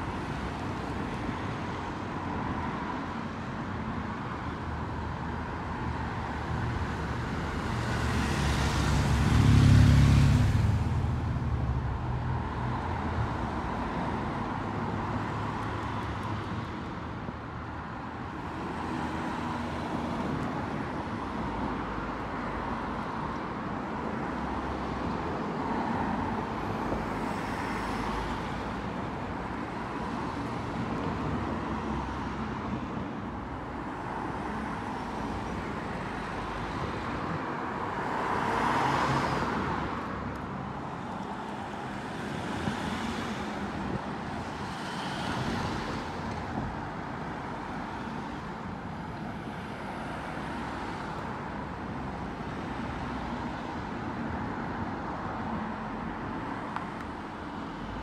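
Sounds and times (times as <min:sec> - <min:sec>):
cars passing by: 0:00.0 - 0:58.0.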